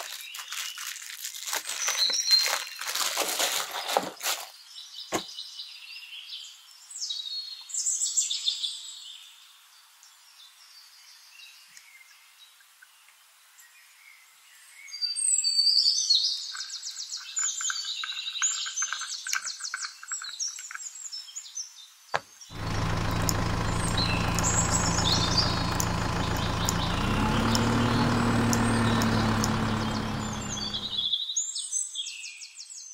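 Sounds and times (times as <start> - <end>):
birds chirping: 22.3 - 31.2
engine running: 22.5 - 31.1
click: 22.6 - 31.0.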